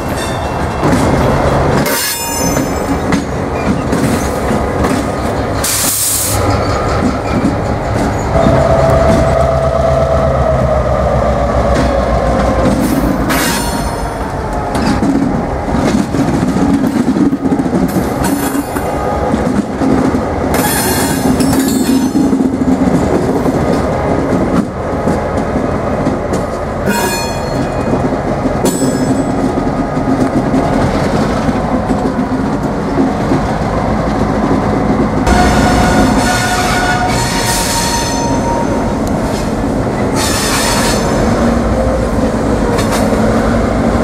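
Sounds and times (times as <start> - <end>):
wheels clacking over rail joints: 0.0 - 9.4, 11.6 - 41.4, 42.1 - 44.0
diesel locomotive engine running: 2.5 - 44.0.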